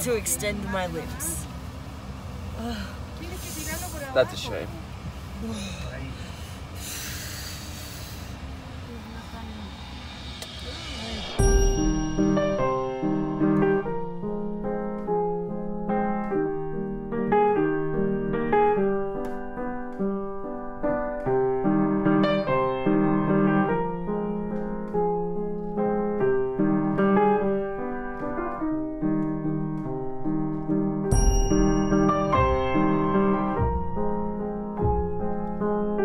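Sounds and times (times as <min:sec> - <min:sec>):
instrumental background music: 0:10.2 - 0:36.0.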